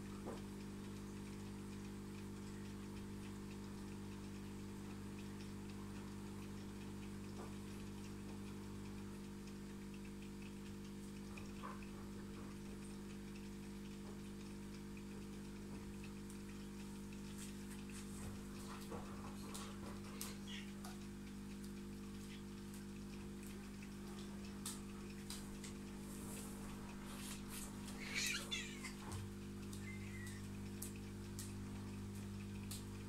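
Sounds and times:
aquarium equipment humming: 0:00.0 - 0:33.0
water drips: 0:00.0 - 0:33.0.

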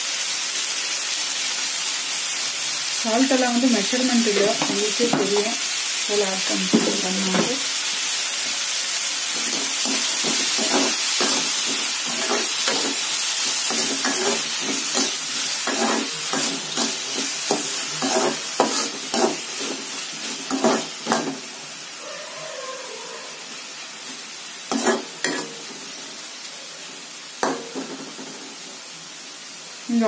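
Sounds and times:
vegetables sizzling in a wok: 0:00.0 - 0:30.0
spatula scraping a wok: 0:09.3 - 0:21.9, 0:24.1 - 0:26.2.

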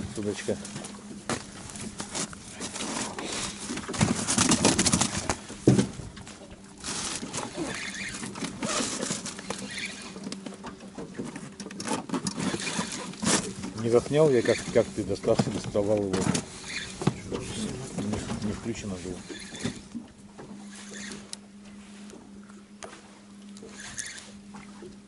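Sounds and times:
water slapping boat hull: 0:00.0 - 0:25.0
wind: 0:00.0 - 0:25.0.

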